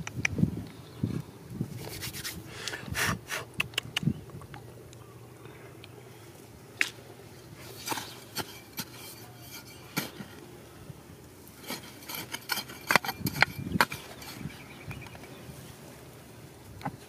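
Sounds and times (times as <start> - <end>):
shovel scraping stony soil: 7.3 - 10.4, 11.4 - 15.1.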